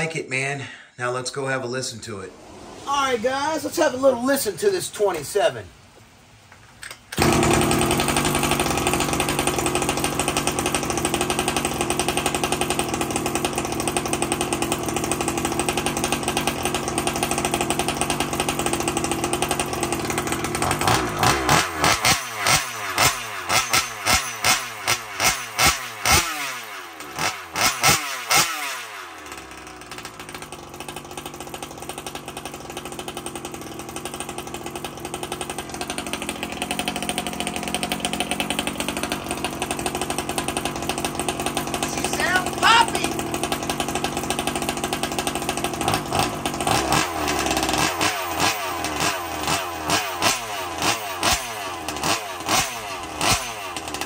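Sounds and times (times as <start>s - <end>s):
two-stroke engine revving: 7.1s - 54.0s.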